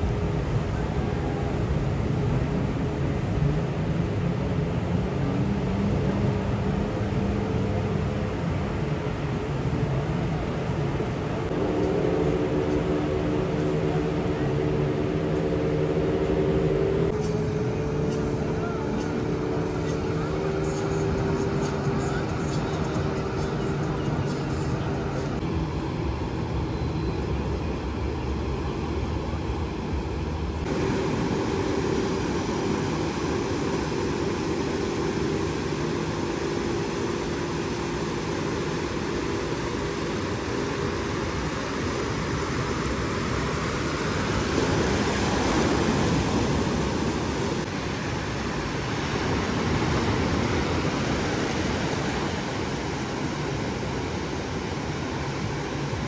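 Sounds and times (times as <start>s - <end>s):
motorboat engine droning: 0.0s - 56.0s
small waves breaking on sand: 30.6s - 56.0s.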